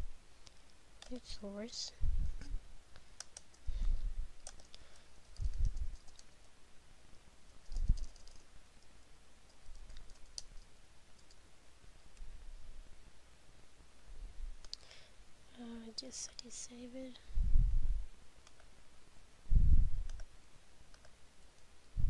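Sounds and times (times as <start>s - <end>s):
dull low thumps: 2.0s - 2.7s, 17.3s - 18.1s, 19.5s - 20.1s
keyboard typing: 3.2s - 3.6s, 4.4s - 6.4s, 7.6s - 8.5s, 9.5s - 11.4s
mouse clicks: 20.0s - 20.3s, 20.9s - 21.2s.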